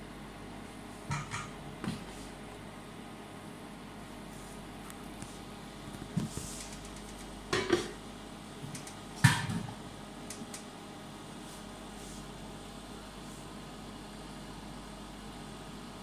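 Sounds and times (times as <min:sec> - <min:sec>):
steady low hum: 0:00.0 - 0:16.0
kitchenware clattering: 0:07.5 - 0:08.0.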